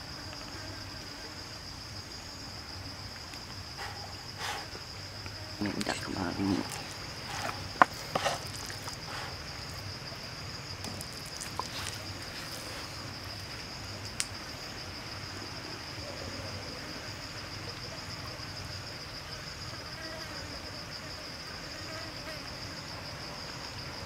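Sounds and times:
insect chirring: 0.0 - 24.0
faint clicks of leaf handling: 10.8 - 13.5.

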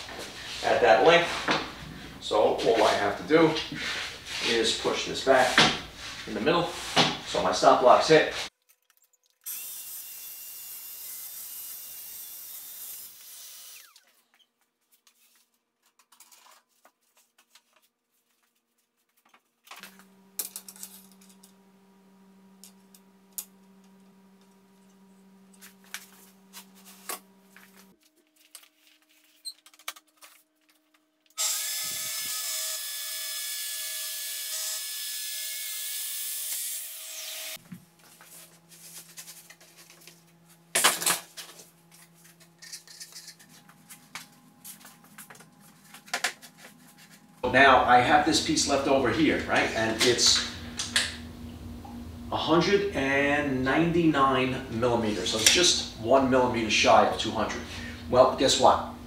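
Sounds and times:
circular saw cutting plywood: 9.5 - 14.4, 31.4 - 37.6.

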